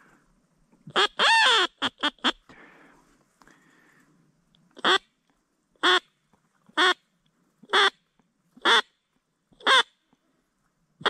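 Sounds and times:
duck call quacks: 4.8 - 5.1, 5.8 - 6.1, 7.7 - 8.0, 8.6 - 8.9, 9.6 - 9.9.

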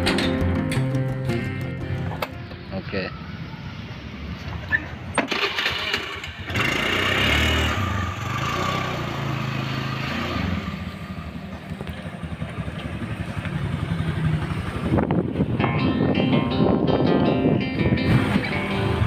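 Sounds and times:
scooter engine starting and idling: 5.2 - 15.8.

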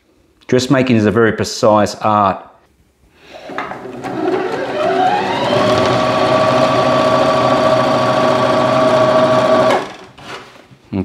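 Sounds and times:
sewing machine motor whine: 3.9 - 10.2.

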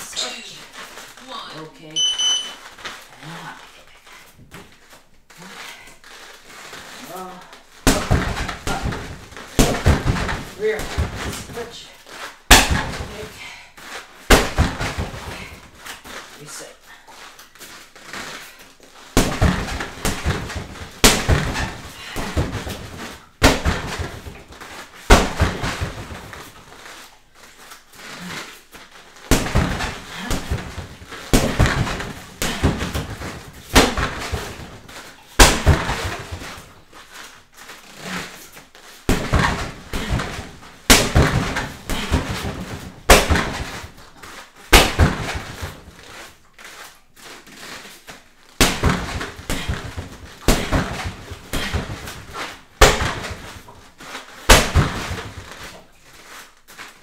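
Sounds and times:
punches and kicks hitting heavy bag: 7.1 - 11.9, 12.5 - 13.4, 14.2 - 15.8, 19.1 - 26.7, 29.2 - 36.9, 39.0 - 46.1, 48.5 - 53.8, 54.4 - 55.8.

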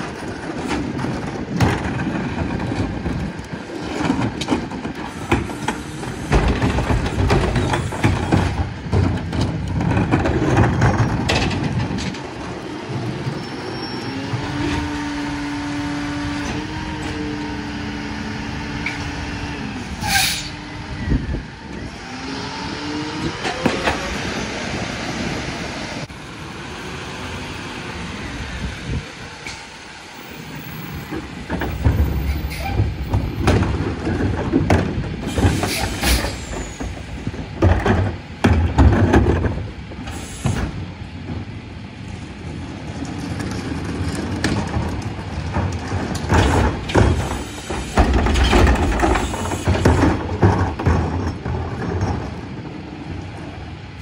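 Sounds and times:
carts clattering and banging: 0.0 - 54.0
truck engine revving: 9.7 - 32.2
air brake hiss: 20.0 - 20.6, 40.1 - 40.8.

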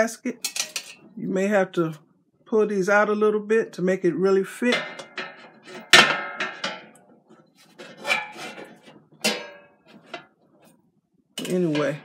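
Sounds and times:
metal plate knocking against basket: 4.7 - 6.9.

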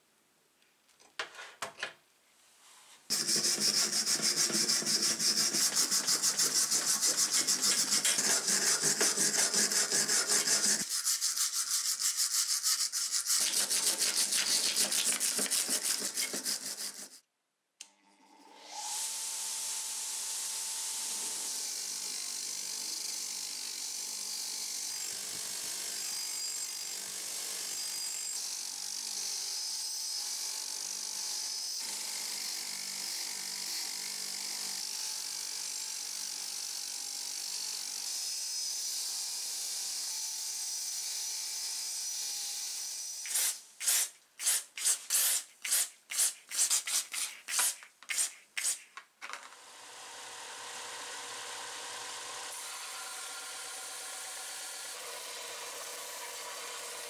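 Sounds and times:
aerosol can spraying bursts: 43.3 - 49.0.

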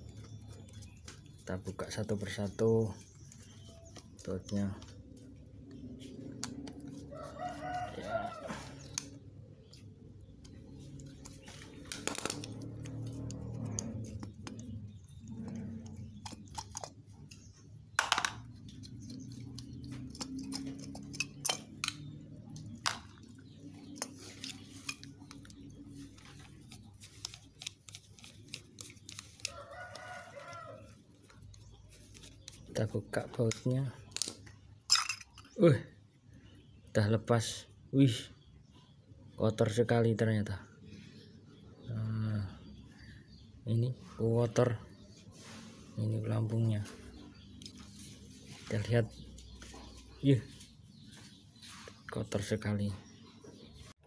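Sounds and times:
rooster crowing: 7.0 - 8.8, 29.5 - 30.9.

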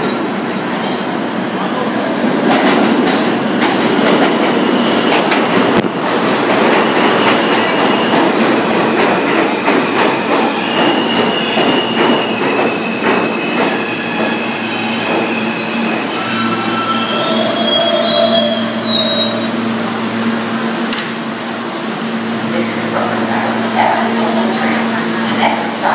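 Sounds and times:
subway train wheels clacking: 0.0 - 25.9
wheel and brake squeal: 10.4 - 19.6.

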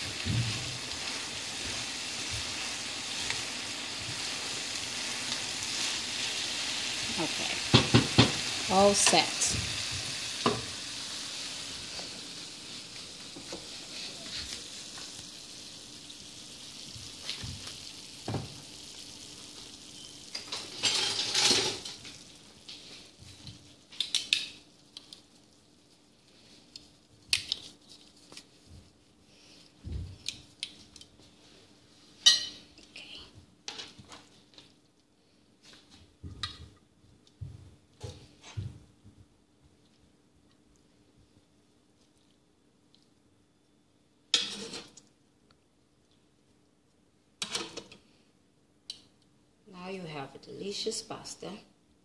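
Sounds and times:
food sizzling in a frying pan: 0.0 - 28.7, 29.3 - 32.8, 44.3 - 45.1.

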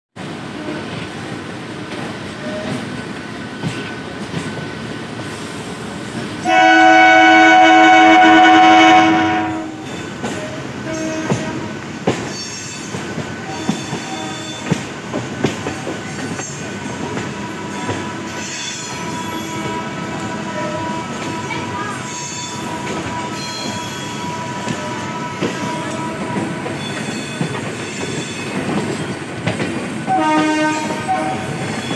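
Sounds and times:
electric train rumbling: 0.2 - 31.9
train horn blast: 6.4 - 9.8, 10.8 - 11.8, 17.3 - 26.8, 30.1 - 31.7
wheels clacking over rail joints: 22.6 - 31.9.

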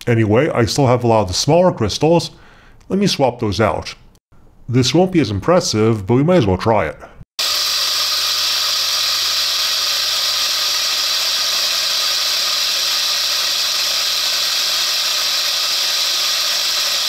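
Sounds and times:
blender whirring: 7.4 - 17.0.

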